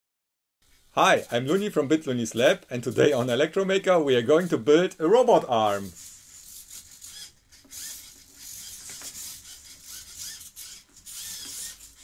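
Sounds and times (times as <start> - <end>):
faint gear rasp: 1.2 - 3.6, 4.2 - 12.0
servo motors whirring: 5.3 - 12.0.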